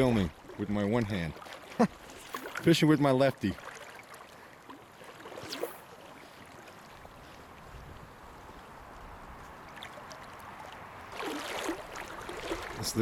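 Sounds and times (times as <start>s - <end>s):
river current rushing: 0.0s - 13.0s
wind rumble on microphone: 7.0s - 11.2s.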